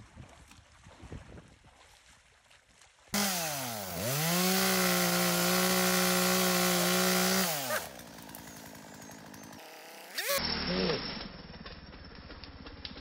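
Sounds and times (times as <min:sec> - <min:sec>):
chainsaw running at high revs: 0:03.2 - 0:13.0.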